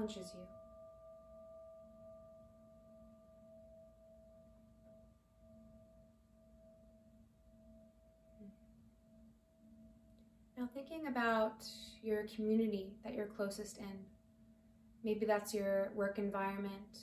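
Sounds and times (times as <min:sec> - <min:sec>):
faint drone of held tones: 0:00.0 - 0:10.8.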